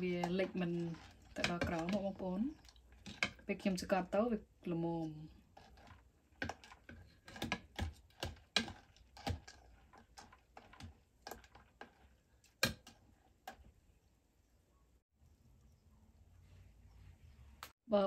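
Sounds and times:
metal ladle knocking crab shells: 0.0 - 3.5, 5.6 - 13.6.

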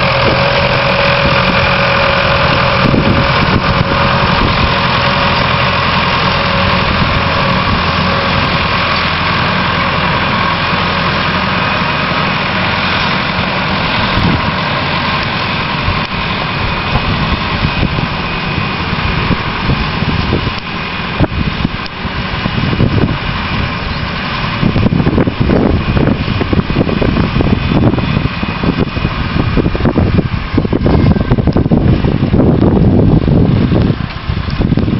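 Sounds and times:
tractor diesel engine running: 0.0 - 34.9
wind buffeting microphone: 0.0 - 34.9.

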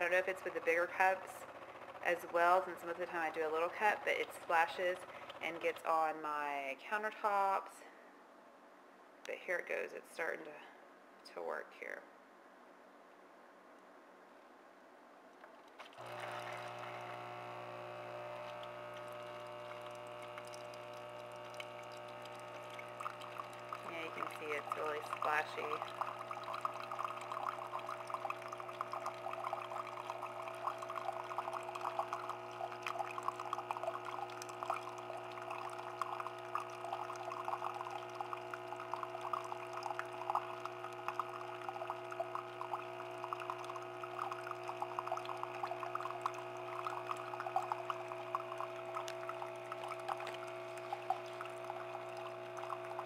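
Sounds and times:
coffee machine humming: 0.0 - 5.8, 15.8 - 53.0
coffee pouring into a mug: 15.8 - 53.0.

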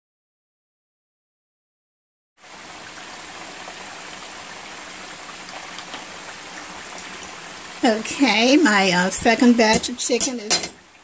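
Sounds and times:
chicken deep frying: 2.4 - 11.0.

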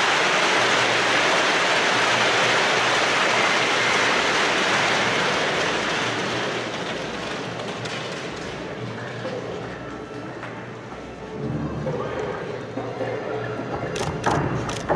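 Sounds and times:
large crowd applauding: 0.0 - 8.8.

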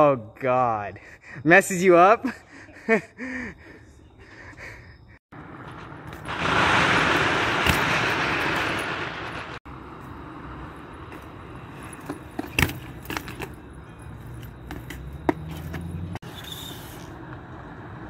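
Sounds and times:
tyres rolling on rough pavement: 5.3 - 18.0.

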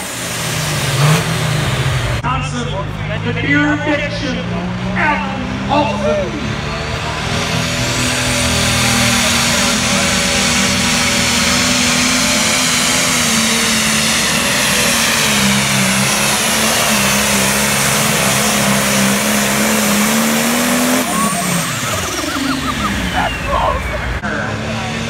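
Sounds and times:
diesel tractor engine at full load: 0.0 - 25.0
turbo whine: 9.7 - 24.4.

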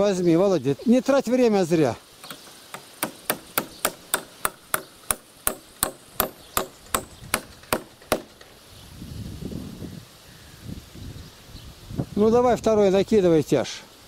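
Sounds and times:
hammer striking nail: 2.2 - 8.5.

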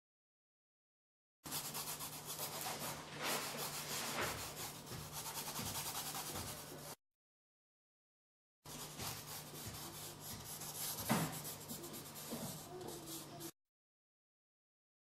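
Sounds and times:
drawing tool scratching on paper: 1.5 - 7.0, 8.7 - 13.6.

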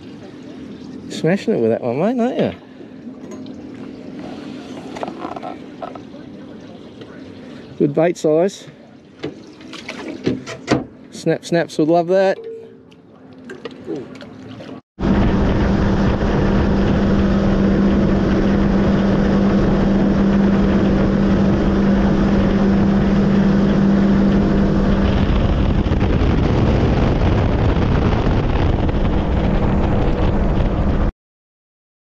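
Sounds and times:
rush of boat wake: 0.0 - 10.5, 13.7 - 31.1
outboard motor hum: 0.0 - 11.5, 12.1 - 31.1
wind on microphone: 15.0 - 31.1.

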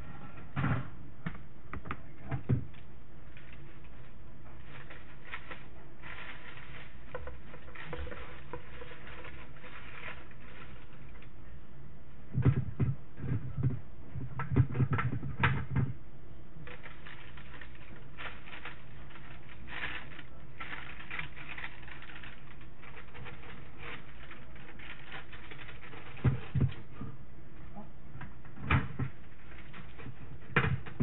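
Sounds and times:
paper crinkling: 2.7 - 11.4, 16.6 - 27.0, 28.6 - 31.0.

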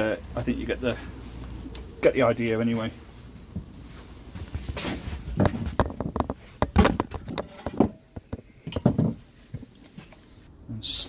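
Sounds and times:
handling knocks and scrapes: 3.4 - 10.4.

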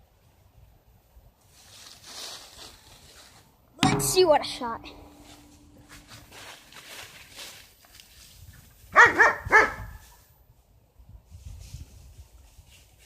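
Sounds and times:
dog barking: 8.9 - 10.0.

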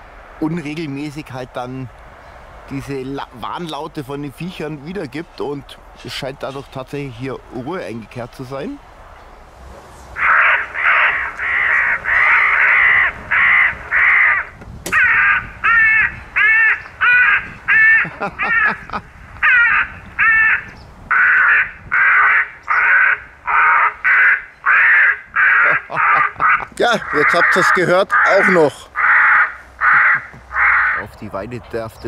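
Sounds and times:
recorded crow caws from loudspeaker: 10.2 - 31.1.

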